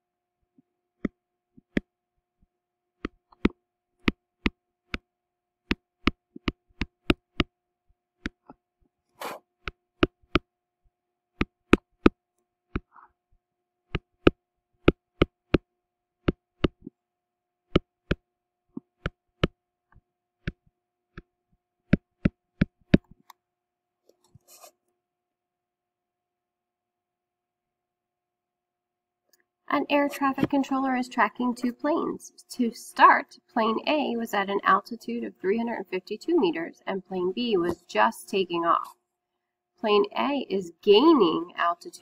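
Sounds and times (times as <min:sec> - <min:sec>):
stylus tapping on tablet: 0:01.0 - 0:01.9, 0:03.0 - 0:05.1, 0:05.7 - 0:07.5, 0:08.2 - 0:08.6, 0:09.6 - 0:10.5, 0:11.4 - 0:13.0, 0:13.9 - 0:17.0, 0:17.7 - 0:18.2, 0:21.9 - 0:23.3.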